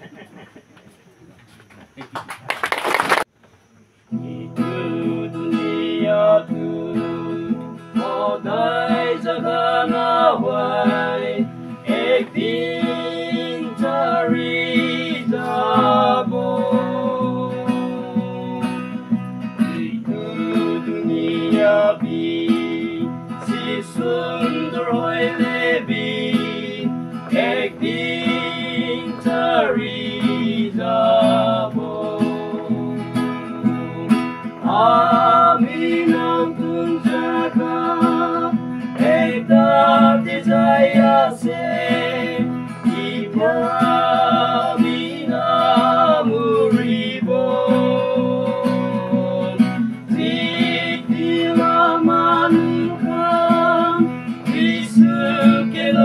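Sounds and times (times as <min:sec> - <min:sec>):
acoustic guitar: 0:02.9 - 0:56.0
person singing: 0:19.7 - 0:56.0.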